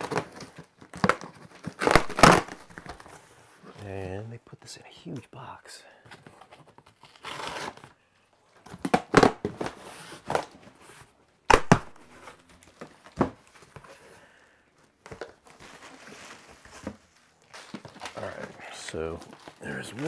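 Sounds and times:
cardboard rustling and tearing: 0.0s - 3.7s, 6.3s - 8.0s, 15.1s - 20.0s.

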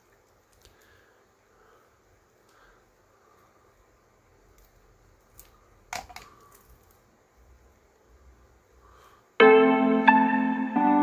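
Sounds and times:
background music: 9.4s - 11.0s.

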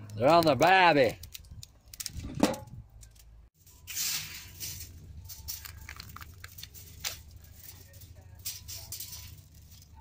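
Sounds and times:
barbecue lid handled: 2.2s - 2.7s
aluminium foil crinkling: 3.0s - 10.0s.

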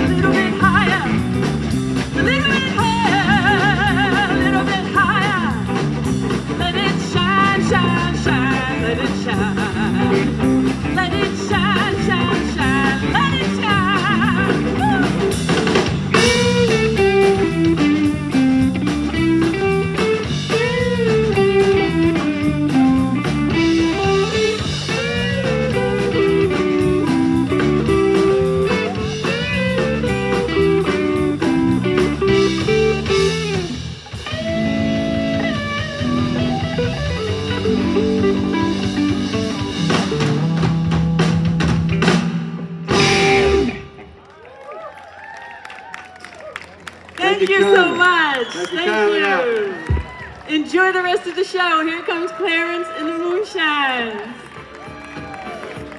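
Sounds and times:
electric guitar lead line: 0.0s - 44.3s
blues-rock band playing: 0.0s - 45.3s, 54.5s - 55.9s.

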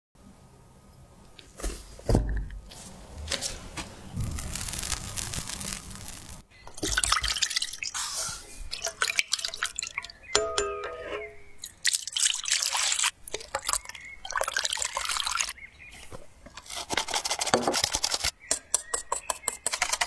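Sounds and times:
wet crackly squishing filling: 2.8s - 10.3s.

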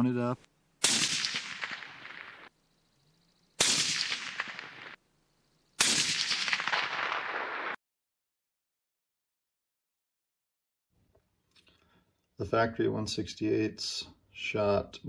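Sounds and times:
suppressed rifle shots: 0.8s - 2.5s, 3.6s - 5.0s, 5.8s - 7.8s.

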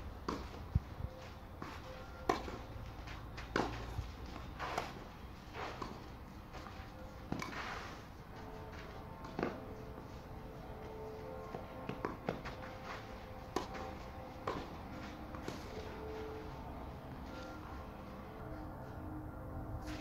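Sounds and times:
racket striking tennis ball: 0.2s - 0.6s, 1.6s - 2.7s, 3.4s - 6.6s, 7.3s - 9.9s, 10.8s - 16.4s
tennis ball bouncing on clay: 1.6s - 5.0s, 5.6s - 6.2s, 7.3s - 7.7s, 10.8s - 16.1s.

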